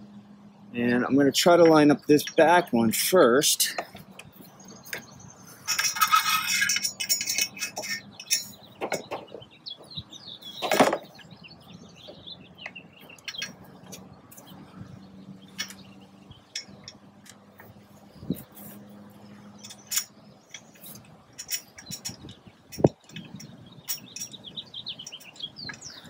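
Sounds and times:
birds chirping faintly: 0:00.0 - 0:26.0.

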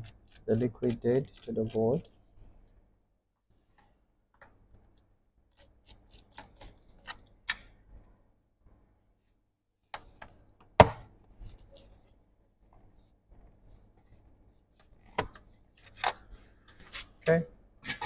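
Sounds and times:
hand tools and screws clicking: 0:04.8 - 0:07.7.

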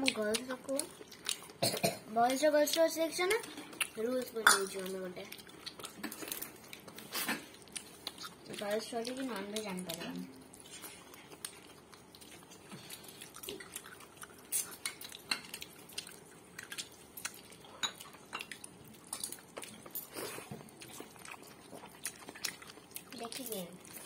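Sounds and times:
chewing: 0:00.0 - 0:24.0.

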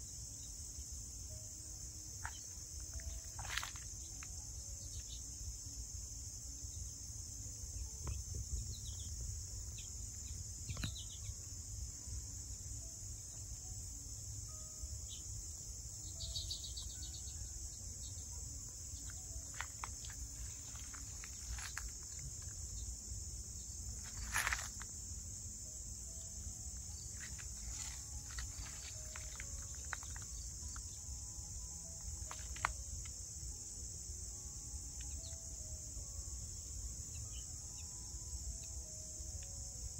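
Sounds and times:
high-pitched insect chorus: 0:00.0 - 0:39.9.

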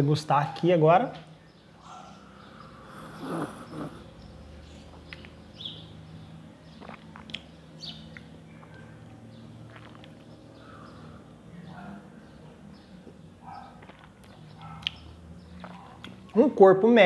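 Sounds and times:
birds chirping: 0:00.0 - 0:17.0
loud coffee slurp: 0:06.8 - 0:07.4, 0:09.7 - 0:10.3.

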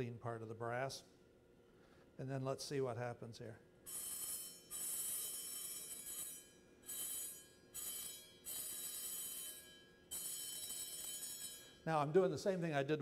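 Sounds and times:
high-pitched metal plate ringing: 0:03.9 - 0:12.5.

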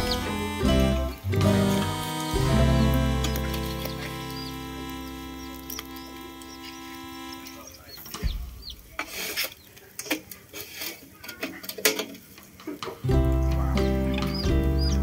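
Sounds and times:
background music: 0:00.0 - 0:07.6, 0:13.0 - 0:15.0.

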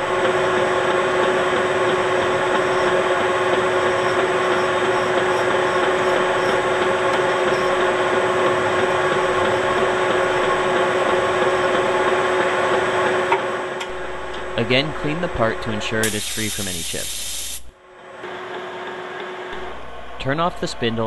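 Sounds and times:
metal lathe humming: 0:00.0 - 0:13.1.

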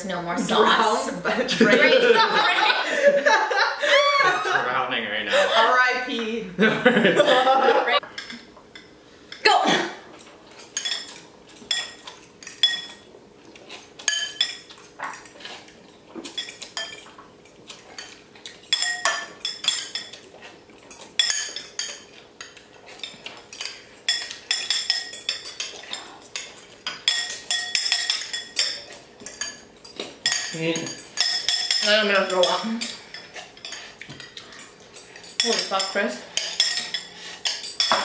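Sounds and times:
spoons and forks clinking on bowls: 0:10.2 - 0:13.1, 0:13.7 - 0:38.0.

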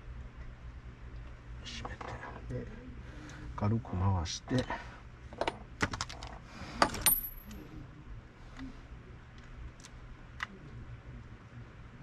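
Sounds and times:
small metal parts clicking: 0:06.8 - 0:07.5.

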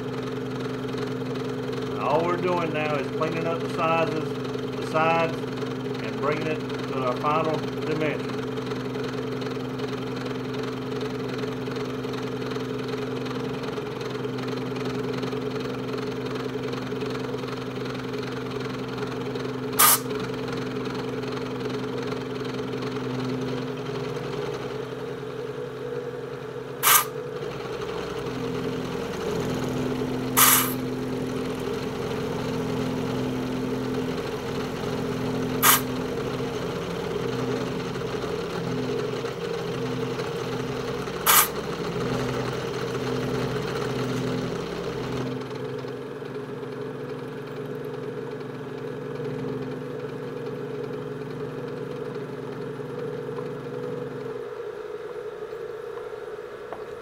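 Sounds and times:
compressed air blasts: 0:19.8 - 0:20.1, 0:26.8 - 0:27.1, 0:30.4 - 0:30.8, 0:35.6 - 0:35.9, 0:41.3 - 0:41.6
milling machine running: 0:22.6 - 0:45.9.

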